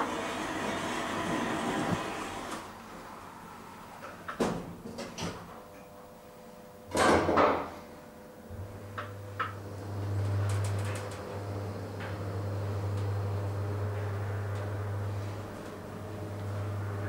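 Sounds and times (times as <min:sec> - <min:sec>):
elevator drive humming: 0:00.0 - 0:03.8, 0:08.5 - 0:17.0.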